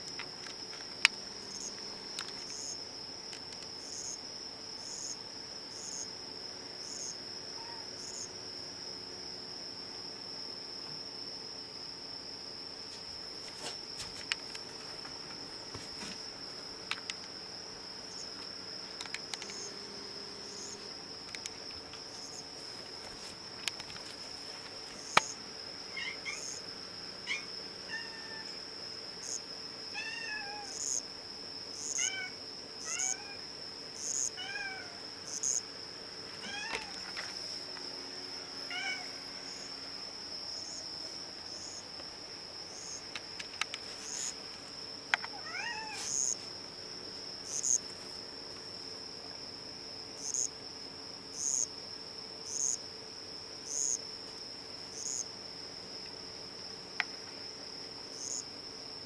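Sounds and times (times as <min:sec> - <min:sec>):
cricket trilling: 0:00.0 - 0:59.0
faint cat meows: 0:07.5 - 0:08.0, 0:27.3 - 0:28.6, 0:29.9 - 0:30.8, 0:32.0 - 0:33.4, 0:34.4 - 0:35.0, 0:36.4 - 0:37.0, 0:38.7 - 0:39.1, 0:45.3 - 0:46.1.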